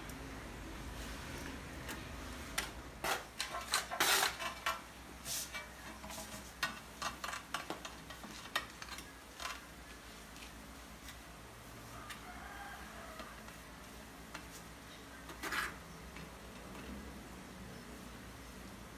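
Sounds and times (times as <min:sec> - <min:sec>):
trowel scraping ceramic tile: 0:03.0 - 0:04.8.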